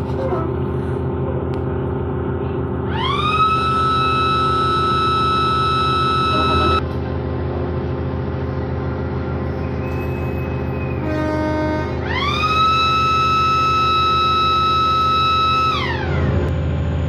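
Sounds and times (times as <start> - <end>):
diesel engine droning: 0.0 - 17.0
train horn blast: 3.1 - 6.8, 11.0 - 16.0.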